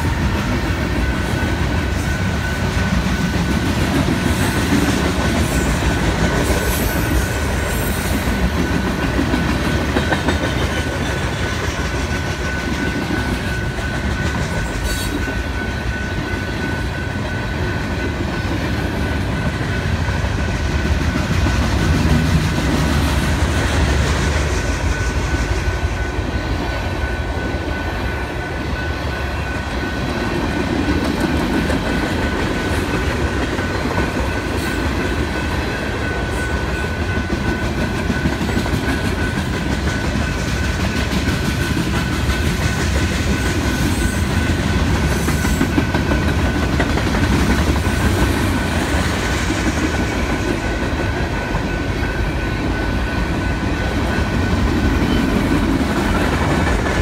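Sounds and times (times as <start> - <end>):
steady high tone: 0.0 - 47.0
freight train rumbling past: 0.0 - 57.0.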